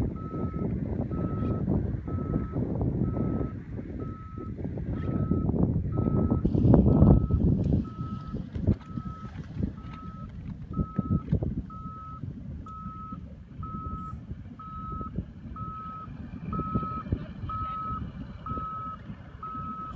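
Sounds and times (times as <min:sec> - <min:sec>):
low rumble: 0:00.0 - 0:19.9
electronic warning beeps: 0:00.1 - 0:19.9.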